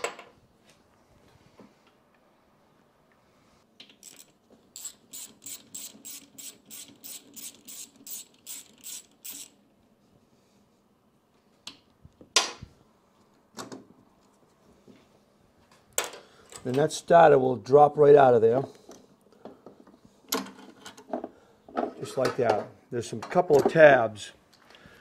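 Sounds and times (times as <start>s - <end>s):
socket ratchet clicking: 3.9s - 9.6s.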